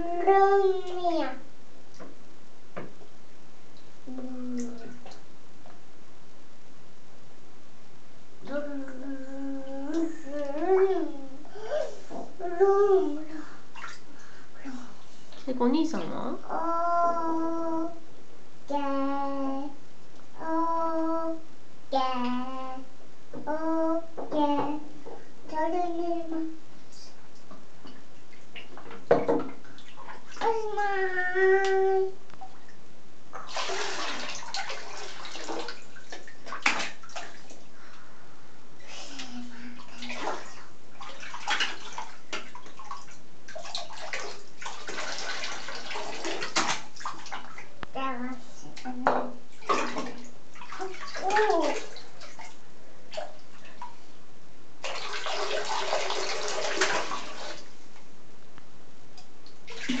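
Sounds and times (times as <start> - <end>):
bathwater sloshing and splashing: 3.7 - 5.4, 8.4 - 16.3, 27.3 - 38.0, 38.8 - 54.1, 54.8 - 57.9, 59.4 - 60.0.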